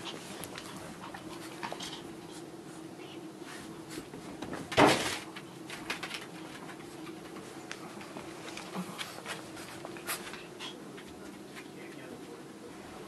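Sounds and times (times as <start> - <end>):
dog claws clicking and pattering: 0.0 - 2.0, 5.6 - 11.7
steady low hum: 0.0 - 13.0
loud rustling thump: 4.3 - 5.3.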